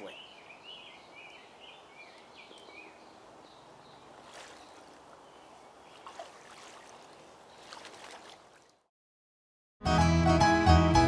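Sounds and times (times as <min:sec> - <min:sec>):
brook flowing: 0:00.6 - 0:08.9.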